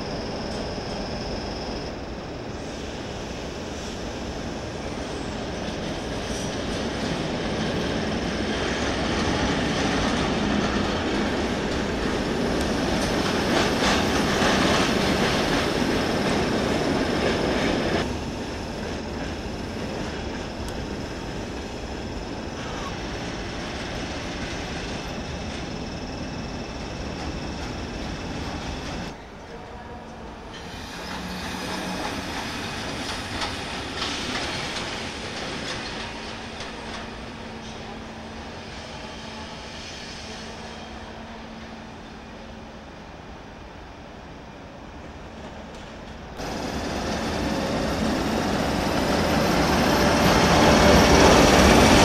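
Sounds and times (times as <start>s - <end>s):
low rumble of rail traffic: 0.0s - 52.0s
train wheels clicking over track: 5.6s - 29.2s, 30.5s - 38.0s.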